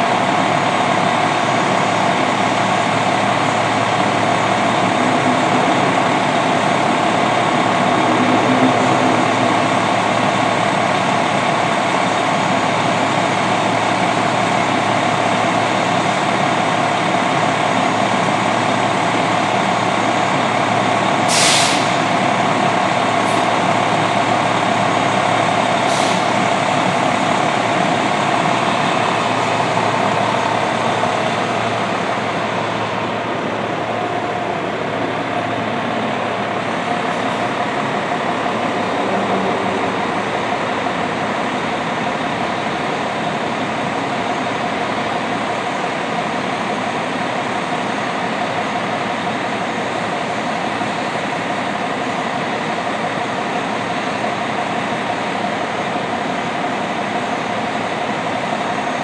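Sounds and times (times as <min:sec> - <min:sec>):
diesel engine idling: 0:00.0 - 0:59.0
air brake hiss: 0:21.3 - 0:22.0, 0:25.9 - 0:26.3.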